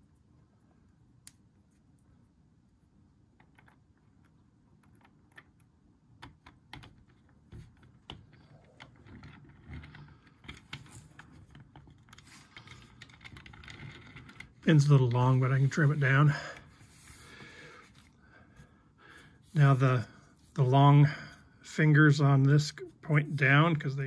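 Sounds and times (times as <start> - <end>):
small plastic parts clicking: 3.4 - 14.6.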